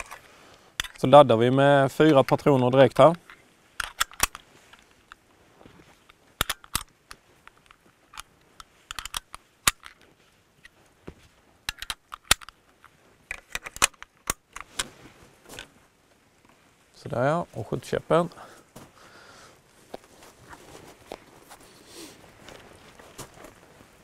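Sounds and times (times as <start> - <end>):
cartridges clicking into magazine: 3.1 - 4.4, 6.4 - 8.3, 8.9 - 10.0, 11.7 - 12.6, 13.3 - 14.8.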